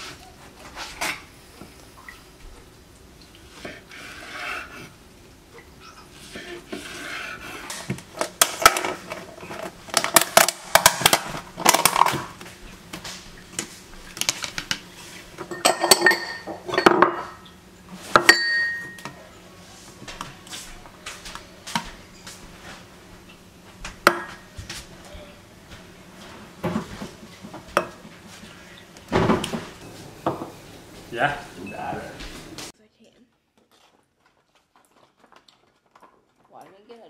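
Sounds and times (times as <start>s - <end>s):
spoon and dishes clinking: 15.4s - 17.5s, 18.1s - 19.3s.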